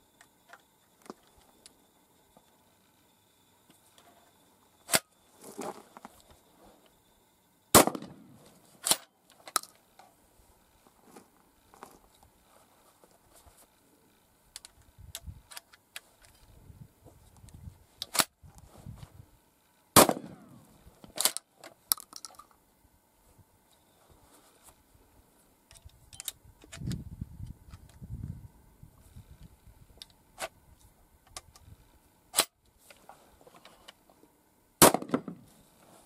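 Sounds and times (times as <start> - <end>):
shotgun blasts: 7.7 - 9.0, 20.0 - 20.6, 34.8 - 35.4
shell loading clicks and rattles: 8.8 - 9.8, 14.5 - 16.5, 21.0 - 22.6, 25.7 - 27.0.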